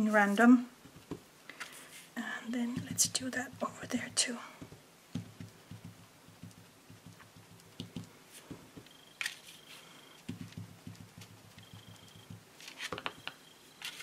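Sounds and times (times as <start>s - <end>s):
ink dauber tapping on paper: 2.7s - 9.0s, 10.3s - 12.4s.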